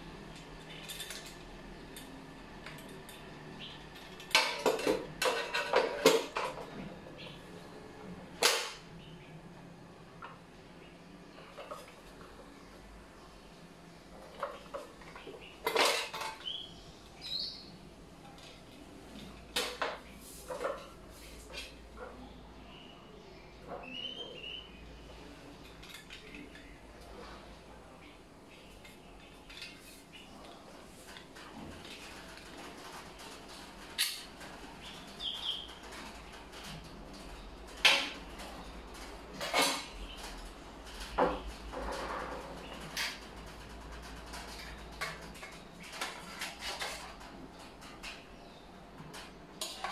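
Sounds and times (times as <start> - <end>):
plastic parts clicking and clattering: 0.3 - 3.3, 3.9 - 6.8, 14.2 - 16.6, 35.8 - 48.3.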